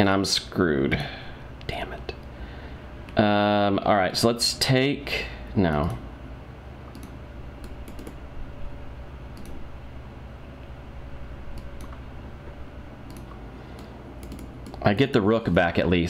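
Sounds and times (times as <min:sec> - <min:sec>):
low room hum: 0:00.0 - 0:16.0
computer mouse clicks: 0:06.9 - 0:08.2, 0:09.3 - 0:09.6, 0:11.5 - 0:12.0, 0:13.0 - 0:14.8.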